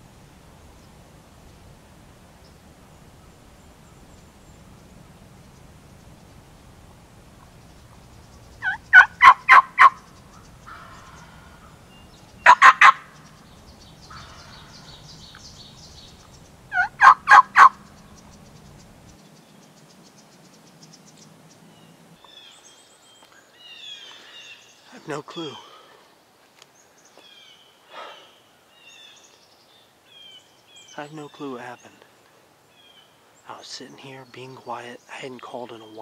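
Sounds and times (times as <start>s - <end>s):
turkey gobbling: 8.6s - 13.2s, 14.1s - 15.1s, 16.7s - 18.4s.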